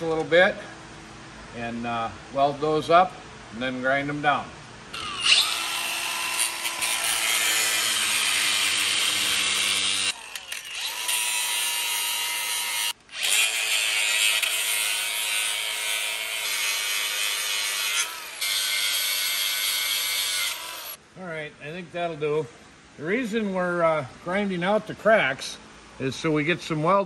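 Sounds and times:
angle grinder grinding steel: 5.0s - 21.0s.

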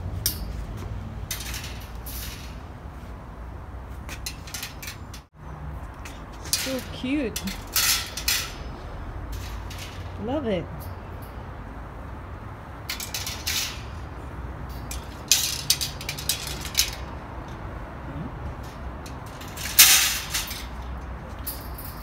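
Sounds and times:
wire shelves rattling on metal frame: 1.2s - 2.7s, 4.1s - 5.3s, 6.4s - 11.3s, 12.8s - 17.2s, 18.6s - 22.0s.

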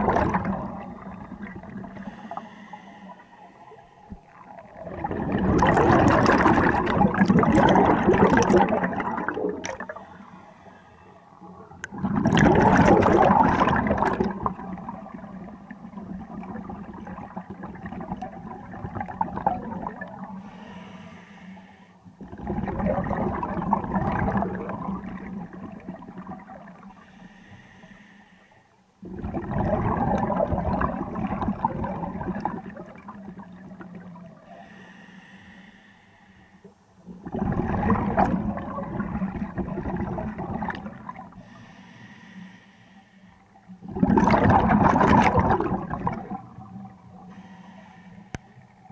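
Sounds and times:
gurgling exhaled bubbles: 0.0s - 2.7s, 4.1s - 10.2s, 11.4s - 20.4s, 22.2s - 27.0s, 29.0s - 34.8s, 37.0s - 41.5s, 43.7s - 47.5s
regulator hiss on inhale: 1.9s - 4.4s, 9.8s - 11.4s, 20.4s - 22.1s, 26.8s - 28.8s, 34.4s - 36.8s, 41.3s - 43.7s, 47.2s - 48.8s.

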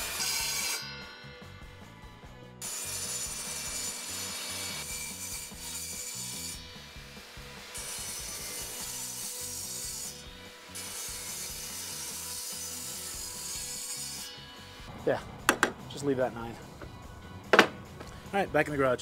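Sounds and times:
saw blade hissing through wood: 2.6s - 14.4s.

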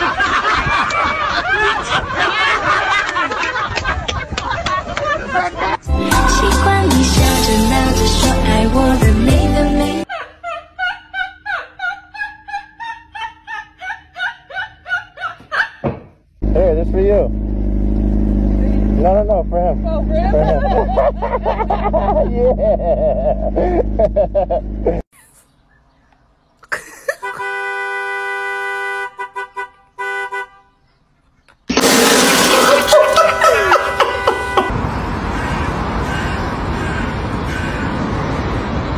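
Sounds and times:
high-pitched laughter: 0.0s - 5.8s, 10.0s - 15.8s, 20.2s - 25.4s, 32.4s - 34.7s
music: 5.9s - 10.0s
car horn blasts and toots: 27.2s - 30.8s, 33.2s - 34.8s.

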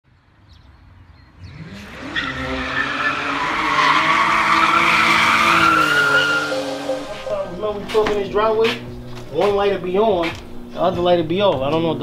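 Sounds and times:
car engine revving: 1.3s - 12.0s
tyre squeal: 1.8s - 7.5s.

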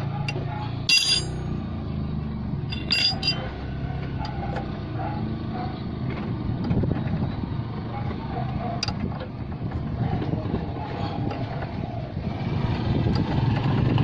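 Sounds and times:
wrench clinking on metal nut: 0.2s - 1.6s, 2.7s - 3.5s.

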